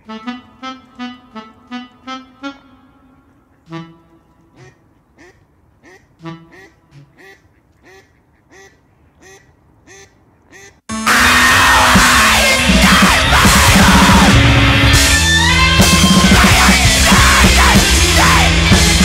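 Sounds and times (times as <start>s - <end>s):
duck-like quacks: 3.5s - 10.8s.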